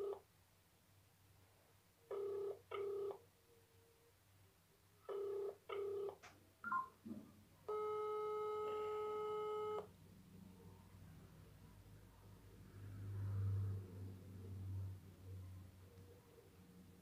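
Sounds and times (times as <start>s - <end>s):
steady phone tone: 7.7s - 9.8s
phone ringback buzzing rings: 7.7s - 9.9s.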